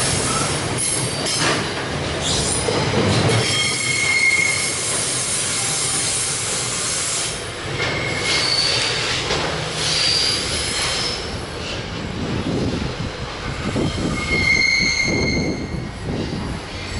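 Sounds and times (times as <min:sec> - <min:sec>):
rumble of wheels on track: 0:00.0 - 0:16.9
train wheels squealing on rails: 0:00.0 - 0:16.9.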